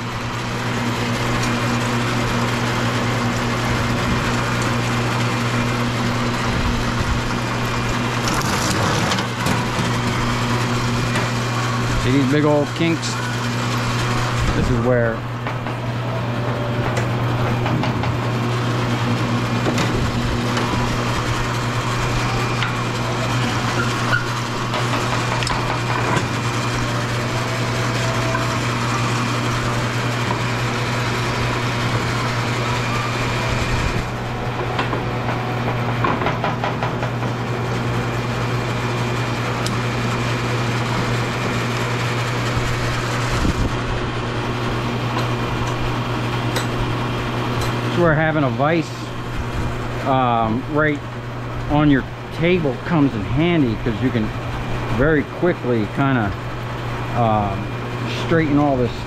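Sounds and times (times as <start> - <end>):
wire stripping machine motor hum: 0.0 - 59.0
knocks and clatter: 34.7 - 37.4.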